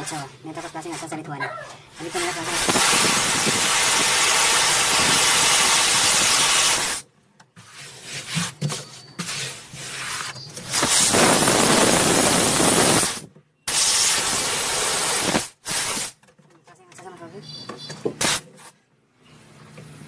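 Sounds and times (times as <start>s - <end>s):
gas hissing from pipe: 1.9s - 7.0s, 9.6s - 16.2s, 18.2s - 18.4s
uneven gas spurts: 1.9s - 7.0s, 9.3s - 16.2s.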